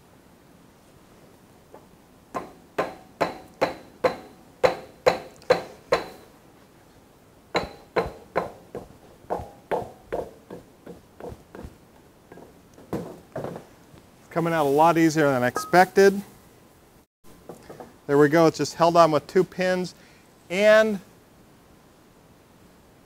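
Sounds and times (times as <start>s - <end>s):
mallet striking metal: 2.4s - 6.2s, 7.6s - 11.7s.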